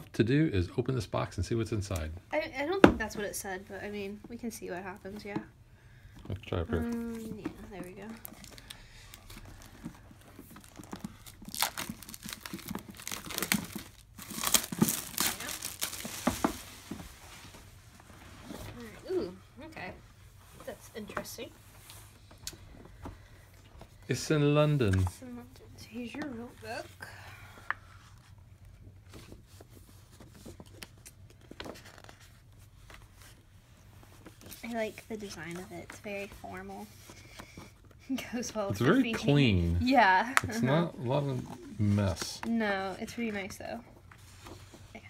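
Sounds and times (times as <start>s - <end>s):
plastic wrap crinkling: 6.5s - 17.7s.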